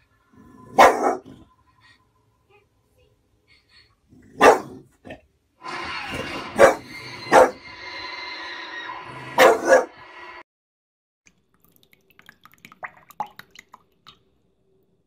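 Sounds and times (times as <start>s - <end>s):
television sound: 0.0s - 10.4s
dog barking: 0.6s - 1.4s, 4.3s - 4.9s, 6.6s - 7.6s, 9.4s - 10.0s.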